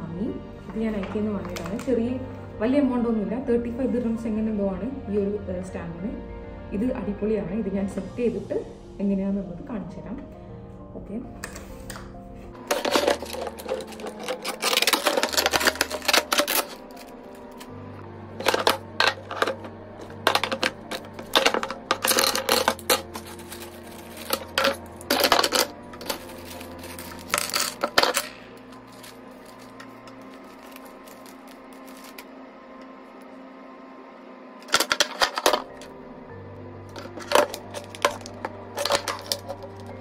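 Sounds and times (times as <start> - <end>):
soft background music: 0.0 - 40.0
plastic parts clattering: 12.6 - 17.7, 18.4 - 32.3, 34.6 - 35.9, 36.9 - 40.0.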